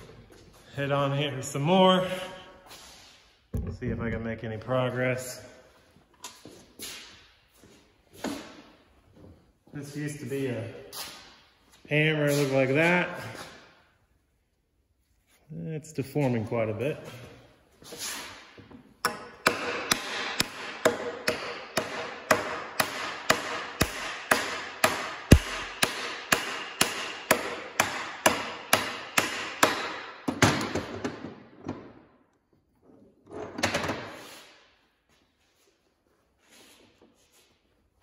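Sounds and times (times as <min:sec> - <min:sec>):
hammer striking metal spindle: 0:19.0 - 0:29.9.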